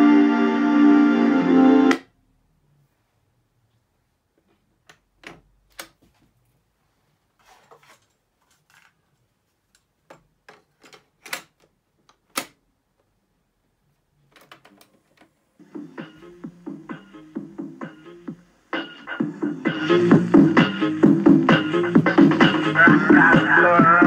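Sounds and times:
music from small speakers: 0:00.0 - 0:02.1, 0:15.6 - 0:24.0.

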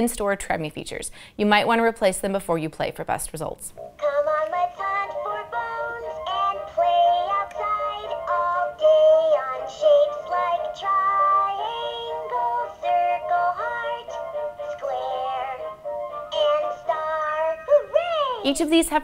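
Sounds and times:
toy speaker playing children's song: 0:03.8 - 0:18.6
synthetic sung voice: 0:16.3 - 0:18.6.

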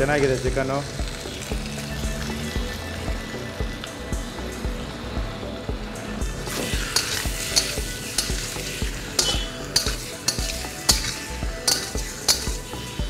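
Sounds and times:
oil sizzling: 0:00.0 - 0:13.0
metal spatula scraping a pan: 0:06.5 - 0:13.0.

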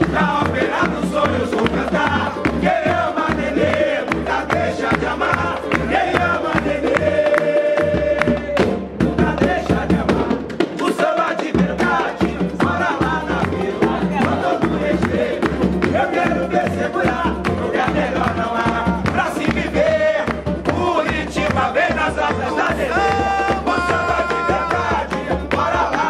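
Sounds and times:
hand clapping: 0:00.0 - 0:08.7, 0:14.2 - 0:19.6, 0:23.0 - 0:26.0
men singing in chorus: 0:00.0 - 0:26.0
pandeiros: 0:00.0 - 0:26.0
small drum: 0:00.0 - 0:26.0
surdo drums beat: 0:00.0 - 0:26.0.

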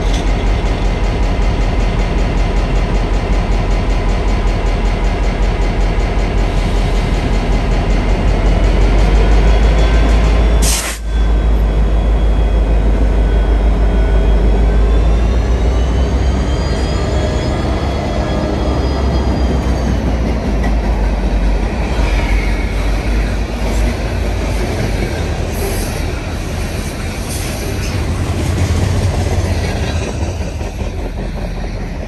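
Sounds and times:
train wheels rumbling on rail: 0:00.0 - 0:32.0
high wheel squeal: 0:06.6 - 0:32.0.

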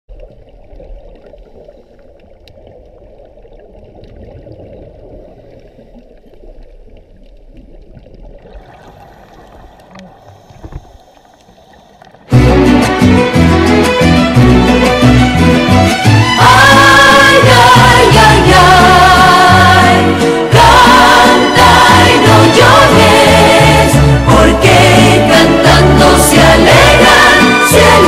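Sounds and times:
underwater rush: 0:00.1 - 0:28.0
faint clicks: 0:09.4 - 0:12.3.

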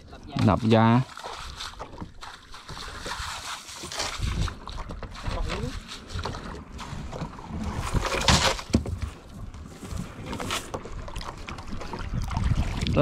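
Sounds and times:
water splashing beside boat hull: 0:00.0 - 0:13.0
wind buffeting microphone: 0:10.9 - 0:13.0.

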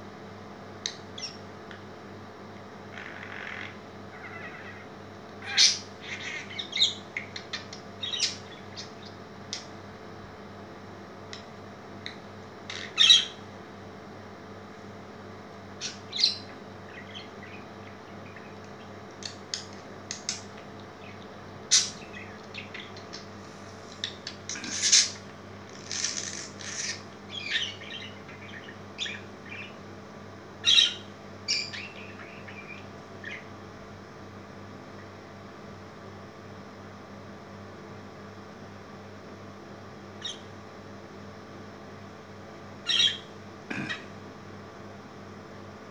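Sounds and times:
budgerigar chirping: 0:05.4 - 0:07.1, 0:08.0 - 0:09.0, 0:12.7 - 0:13.4, 0:15.8 - 0:18.6, 0:21.0 - 0:23.2, 0:26.6 - 0:29.8, 0:30.6 - 0:33.5, 0:42.9 - 0:43.3.

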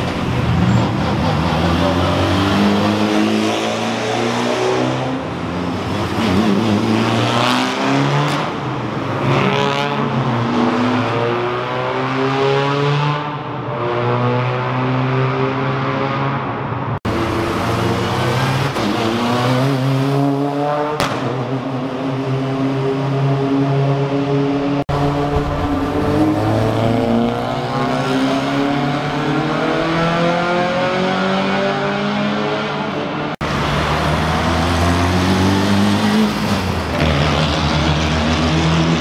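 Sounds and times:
engines echoing in a tunnel: 0:00.0 - 0:39.0
rally cars accelerating past: 0:17.1 - 0:39.0.

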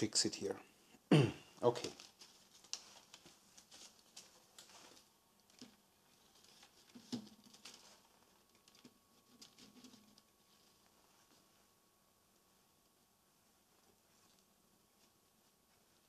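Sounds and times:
plastic reel rustling and tapping: 0:01.8 - 0:11.5.

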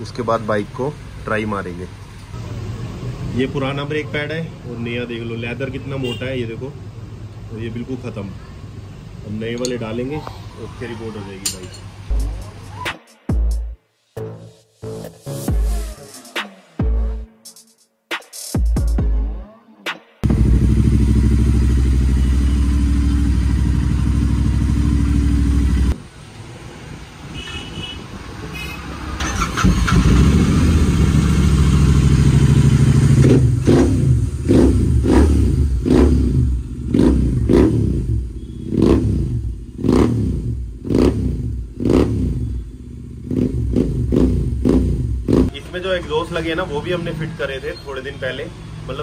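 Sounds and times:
motorcycle engine revving: 0:20.2 - 0:26.0, 0:28.8 - 0:45.6.

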